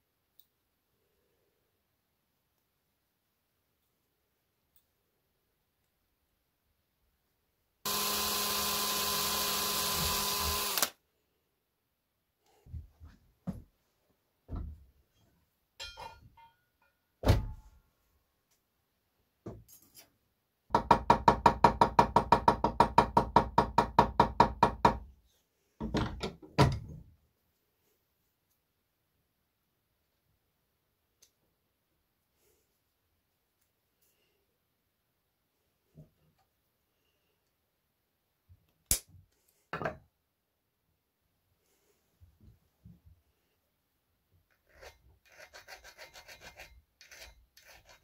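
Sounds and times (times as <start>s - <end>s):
small power tool running: 7.9s - 11.0s
tools knocking on bench: 39.7s - 40.0s.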